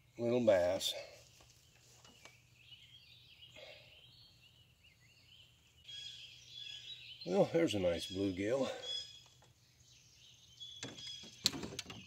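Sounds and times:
faint bird chirping: 0.0 - 12.0
steady bird call: 2.2 - 11.7.

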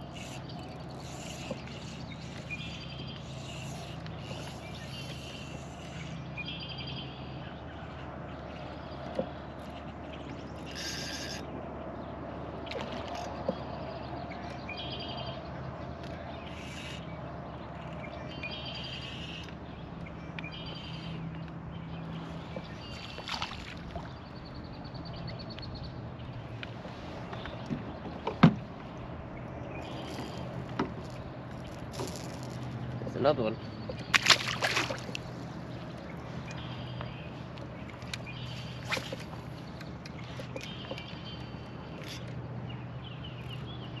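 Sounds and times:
trilling bird calls: 10.4 - 11.6, 16.3 - 26.4.

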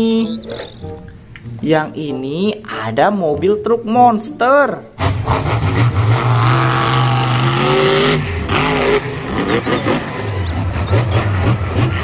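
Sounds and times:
truck engine revving: 4.8 - 12.0.

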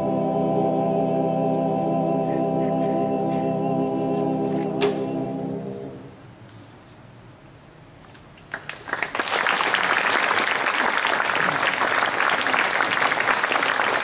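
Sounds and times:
audience applause: 8.5 - 14.0.

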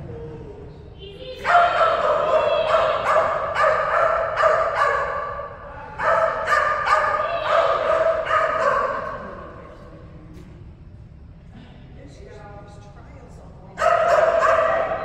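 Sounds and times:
dog barking high-pitched: 1.4 - 9.2, 13.8 - 15.0.

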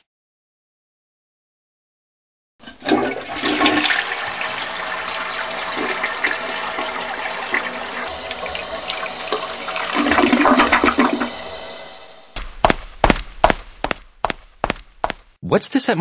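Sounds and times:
toilet flushing: 2.6 - 12.4.

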